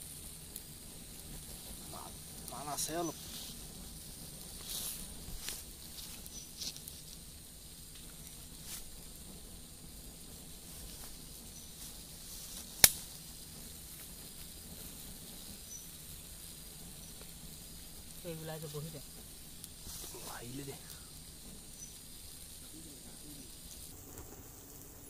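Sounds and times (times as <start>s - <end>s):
faint insect chirps: 0.0s - 25.0s
flame hissing and crackling: 0.0s - 25.0s
sharp crack: 12.6s - 13.3s.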